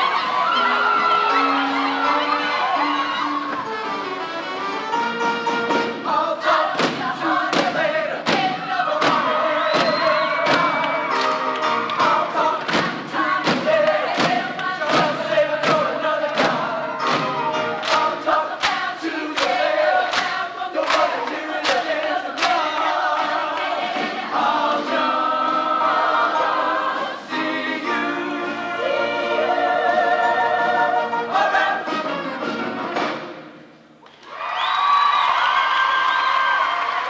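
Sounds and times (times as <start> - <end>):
sharp rhythmic beats: 5.1 - 33.4
choir singing with band: 5.8 - 33.2.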